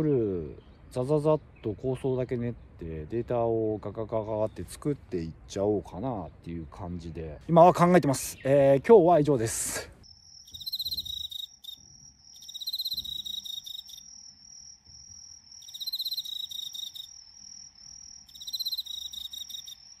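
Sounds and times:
insects trilling: 0:10.0 - 0:20.0
rapid pulsed insect chirping: 0:10.0 - 0:20.0.

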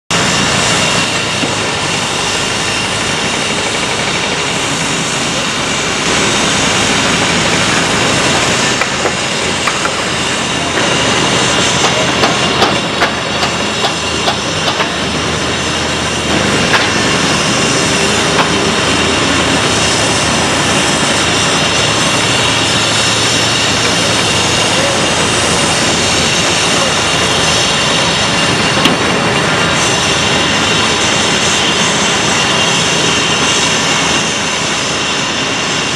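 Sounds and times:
diesel machinery drone: 0:00.1 - 0:35.9
knocks and clanks: 0:07.4 - 0:10.1, 0:10.7 - 0:15.2.

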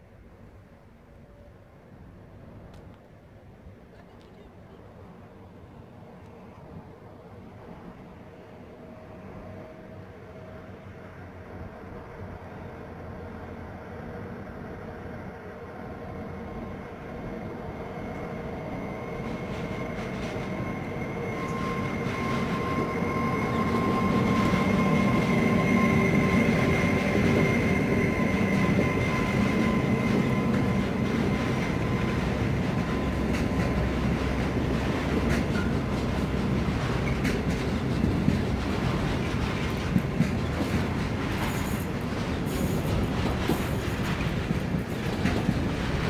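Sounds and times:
freight train rumbling past: 0:04.5 - 0:46.0.

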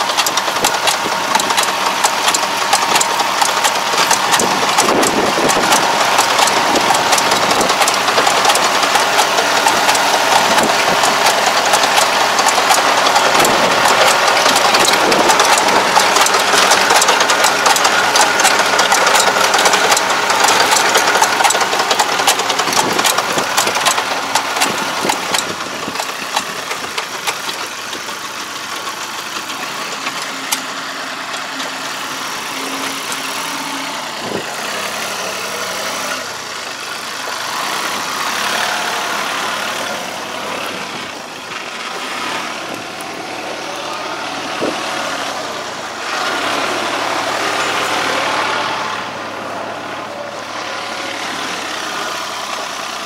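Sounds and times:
quick clicking: 0:00.0 - 0:30.7
tractor diesel engine running: 0:00.0 - 0:53.0.

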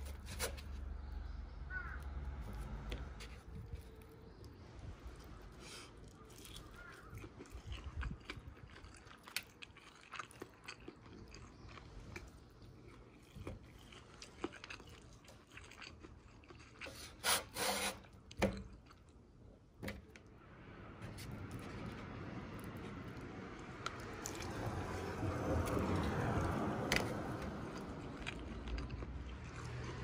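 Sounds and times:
person chewing: 0:05.2 - 0:17.2, 0:18.0 - 0:19.3, 0:22.6 - 0:30.0.

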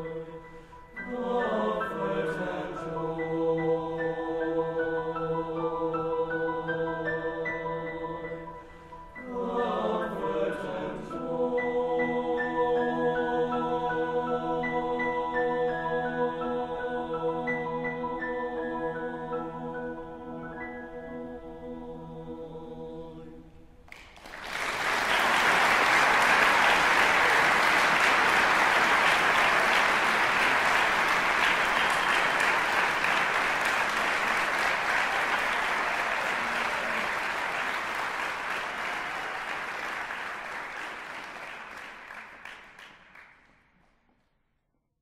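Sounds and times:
audience applause: 0:23.9 - 0:43.4.

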